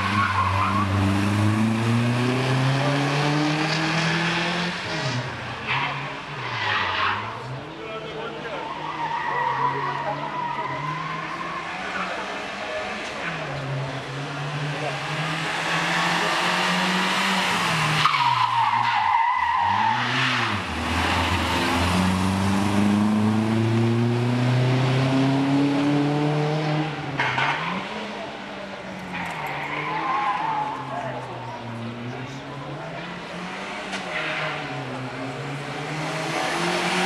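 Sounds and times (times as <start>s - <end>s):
rally car engine revving: 0.0s - 37.0s.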